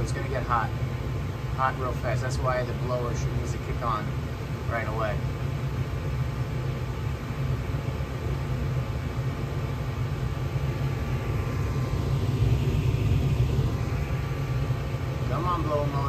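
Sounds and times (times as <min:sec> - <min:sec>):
faint hum: 0:00.0 - 0:16.0
furnace low rumble: 0:00.0 - 0:16.0.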